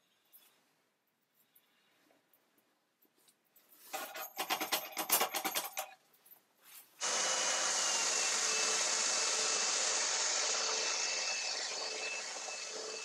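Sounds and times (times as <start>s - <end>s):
belt sander hissing: 7.0s - 13.0s.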